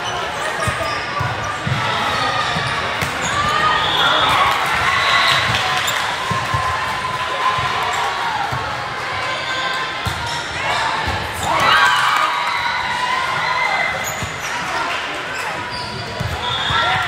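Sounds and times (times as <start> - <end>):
sneakers squeaking: 0.0 - 6.6, 9.3 - 12.7, 13.4 - 17.0
crowd chatter: 0.0 - 17.0.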